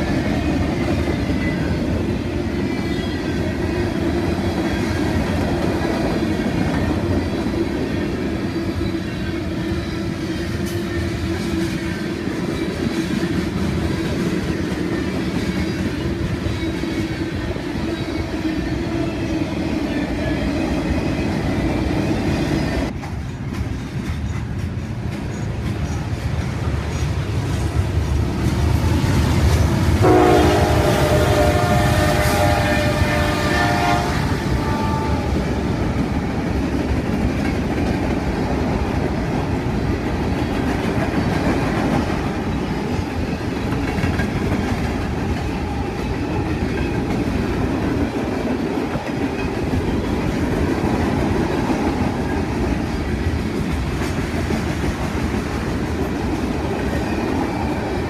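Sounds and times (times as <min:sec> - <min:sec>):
freight train rolling on rails: 0:00.0 - 0:58.0
train horn chord: 0:30.0 - 0:35.5.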